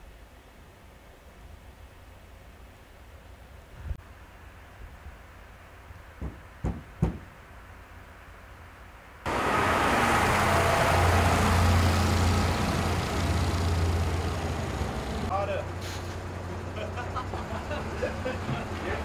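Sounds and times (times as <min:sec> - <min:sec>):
knocks: 0:06.2 - 0:07.4
diesel engine running loudly: 0:09.3 - 0:19.0.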